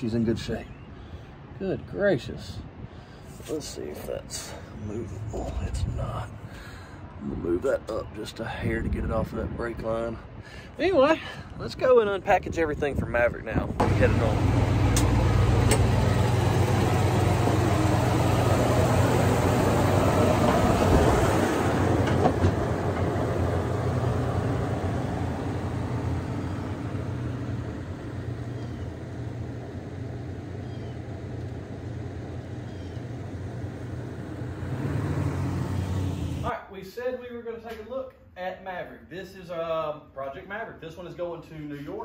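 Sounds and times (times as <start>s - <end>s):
pickup engine rumbling: 13.8s - 36.5s.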